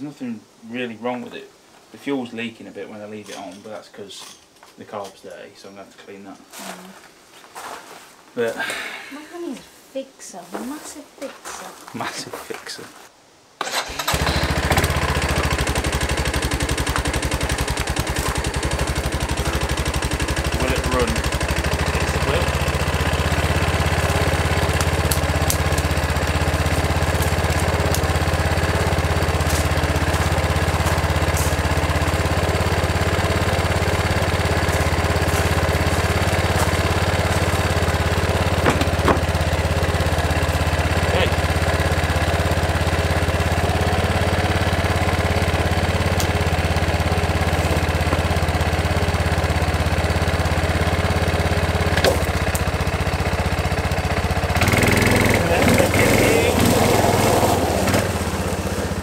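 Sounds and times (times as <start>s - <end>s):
atv engine idling: 13.8s - 59.0s.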